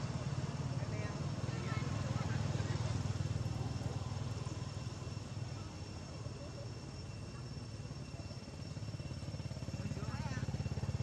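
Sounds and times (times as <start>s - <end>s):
engine idling: 8.4s - 11.0s.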